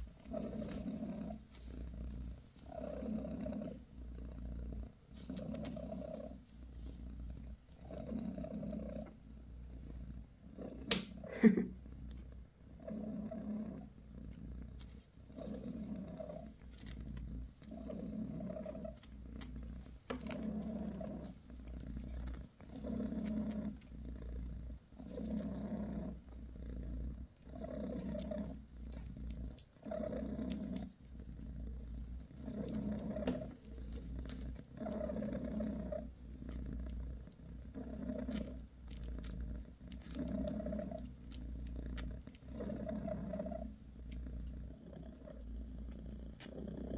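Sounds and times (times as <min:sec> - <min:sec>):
cat purring: 0:00.0 - 0:46.9.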